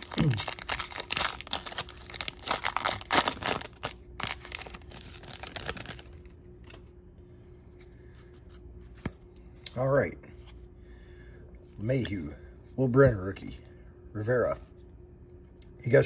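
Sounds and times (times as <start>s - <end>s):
card pack wrapper tearing and crinkling: 0.0s - 6.8s.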